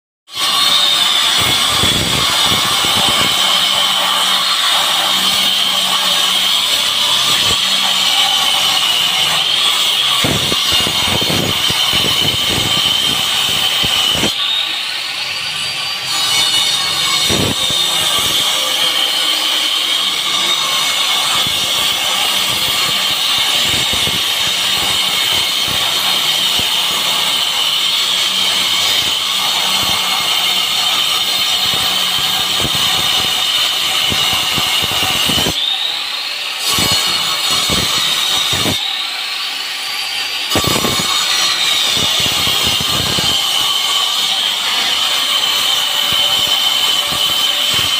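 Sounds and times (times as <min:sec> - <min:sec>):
angle grinder motor whine: 0:00.4 - 0:16.1.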